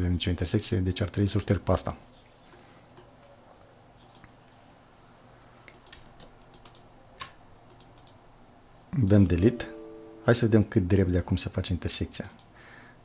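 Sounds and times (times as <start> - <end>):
computer mouse clicks: 4.0 - 4.4, 5.5 - 8.2, 12.2 - 12.5.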